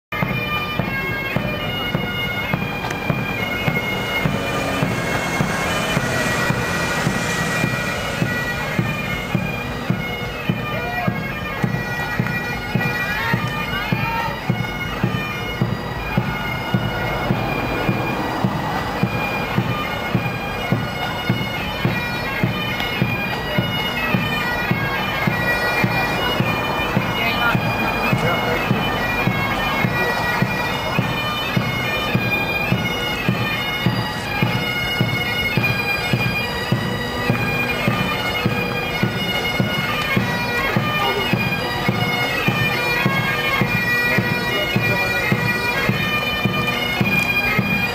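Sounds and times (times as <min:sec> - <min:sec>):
bagpipes playing a march: 0:00.1 - 0:47.9
marching drum beat: 0:00.2 - 0:11.8, 0:23.4 - 0:36.2.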